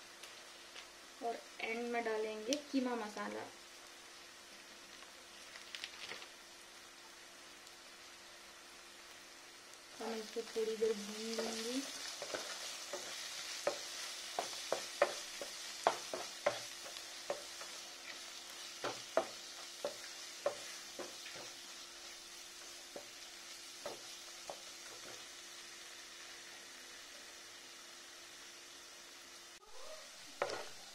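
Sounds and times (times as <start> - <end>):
food sizzling in a pan: 0.0 - 30.9
spatula knocking against pan: 13.0 - 17.8, 18.8 - 21.6.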